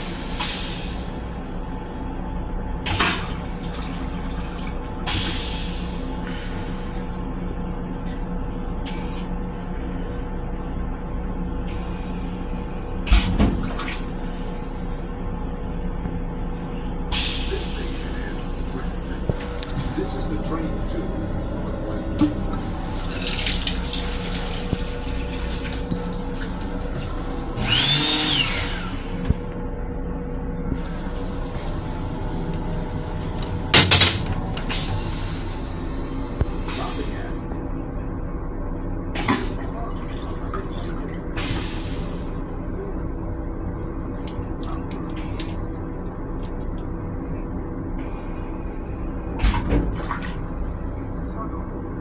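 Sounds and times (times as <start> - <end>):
train car rumbling: 0.0 - 28.0, 28.6 - 52.0
loud clunk of toilet flush: 2.9 - 5.7, 13.1 - 14.1, 33.7 - 34.9, 39.2 - 40.7, 49.4 - 50.4
water rushing from sink faucet: 22.2 - 27.3.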